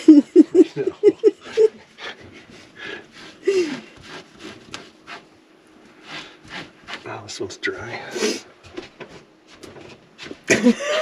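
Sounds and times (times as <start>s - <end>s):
person laughing: 0.0s - 1.8s, 10.5s - 11.0s.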